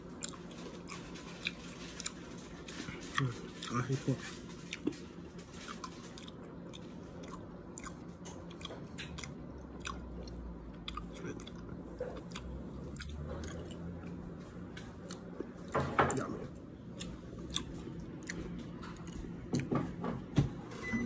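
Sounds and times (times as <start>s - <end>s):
person chewing: 0.0s - 19.7s
low steady hum: 0.0s - 21.0s.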